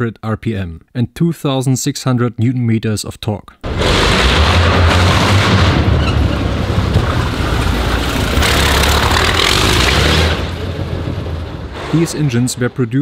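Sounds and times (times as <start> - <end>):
aircraft engine car roaring: 3.7 - 11.9
tyres spinning: 3.7 - 12.8.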